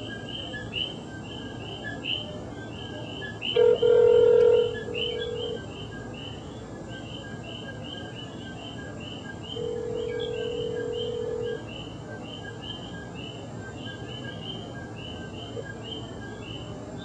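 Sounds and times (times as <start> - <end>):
frogs chirping: 0.0 - 17.0
telephone ringback tone: 3.6 - 5.6, 9.6 - 11.6.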